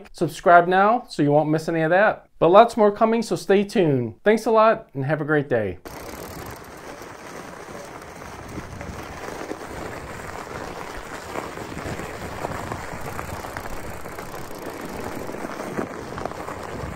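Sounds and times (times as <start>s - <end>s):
bike tyres crunching on snow: 5.8s - 16.9s.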